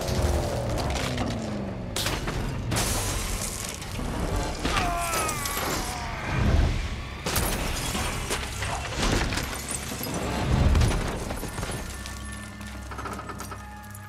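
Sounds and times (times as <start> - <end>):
glass breaking: 2.0 - 6.0, 7.2 - 12.6.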